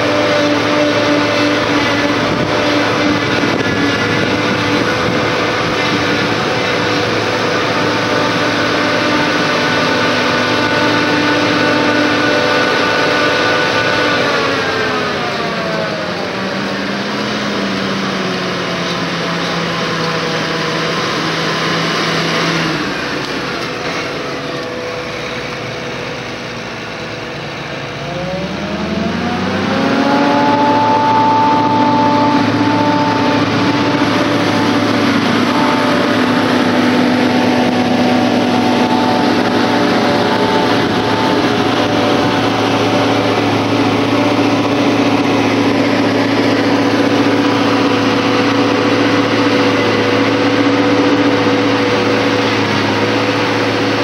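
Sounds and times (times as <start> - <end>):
diesel engines under load: 0.0 - 54.0.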